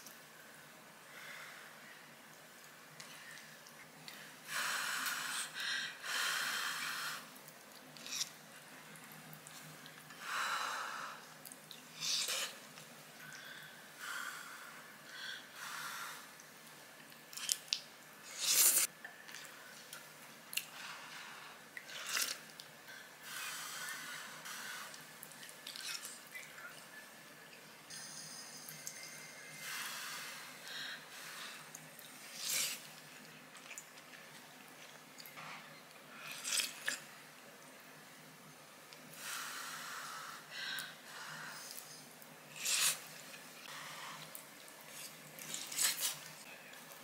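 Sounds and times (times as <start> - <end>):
chewing: 31.7 - 35.4, 44.2 - 47.0
person slurping noodles: 42.6 - 43.1.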